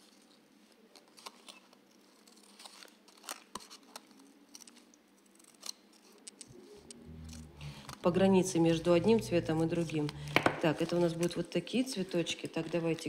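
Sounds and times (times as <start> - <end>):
small scissors snipping paper: 0.9 - 6.4.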